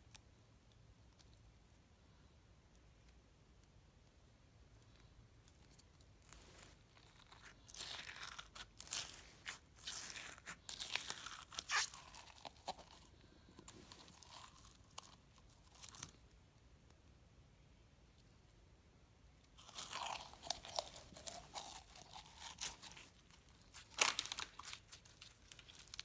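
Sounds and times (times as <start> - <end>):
slime crackling and popping: 7.0 - 13.0, 19.6 - 26.0.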